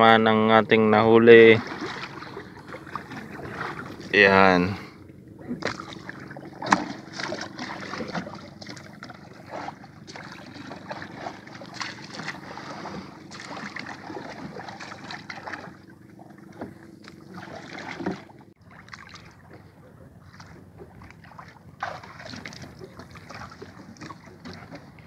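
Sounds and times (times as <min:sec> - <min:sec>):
low hum: 0:00.0 - 0:25.0
water lapping against boat: 0:00.0 - 0:25.0.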